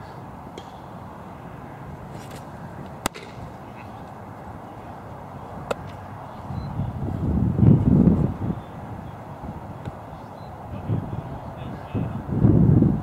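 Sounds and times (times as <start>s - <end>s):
low outdoor background: 0.0s - 13.0s
baseball popping into glove: 2.2s - 3.5s.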